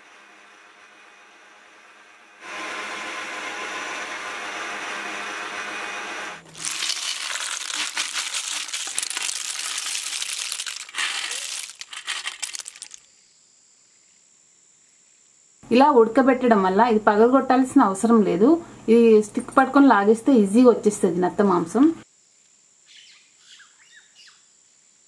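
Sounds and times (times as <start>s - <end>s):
water boiling in pot: 6.4s - 13.0s
shells clattering in basket: 6.6s - 13.0s.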